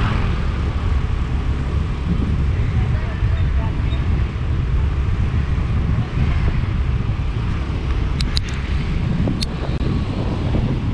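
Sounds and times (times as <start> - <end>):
wind on microphone: 0.0 - 10.9.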